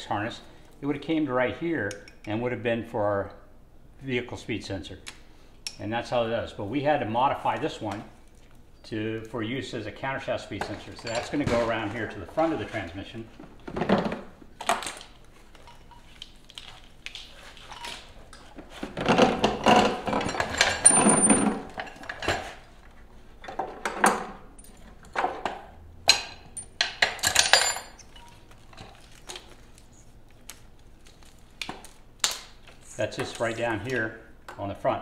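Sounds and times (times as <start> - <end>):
metal clinks and knocks: 10.6 - 11.9, 13.7 - 22.7, 23.4 - 29.2
wiring harness rustling and scraping: 14.9 - 23.5, 27.4 - 32.0, 32.6 - 34.1.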